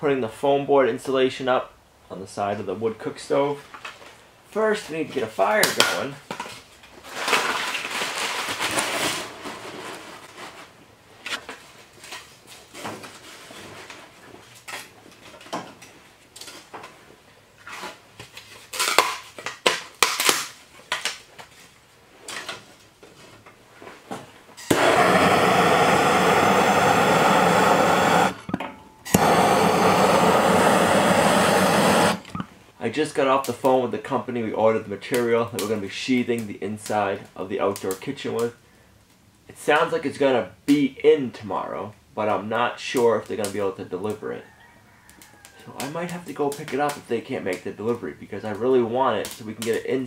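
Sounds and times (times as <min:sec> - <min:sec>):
gas torch hissing: 0:24.7 - 0:32.4.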